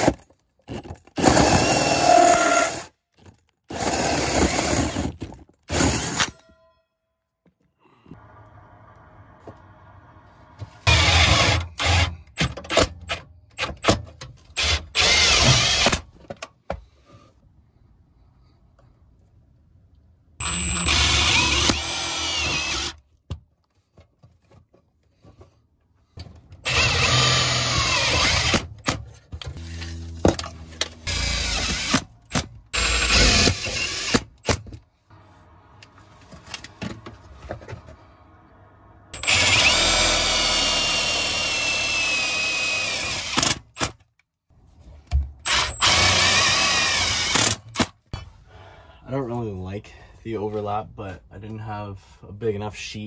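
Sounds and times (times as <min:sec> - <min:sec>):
cordless drill driving screws: 0:01.2 - 0:02.9, 0:10.9 - 0:12.1, 0:14.6 - 0:16.0, 0:20.4 - 0:23.0, 0:26.6 - 0:28.7, 0:31.1 - 0:34.6, 0:39.2 - 0:43.9, 0:45.4 - 0:47.9
drill clicks: 0:20.4 - 0:23.0, 0:26.6 - 0:29.0, 0:31.0 - 0:34.6, 0:39.2 - 0:44.0, 0:45.4 - 0:48.0.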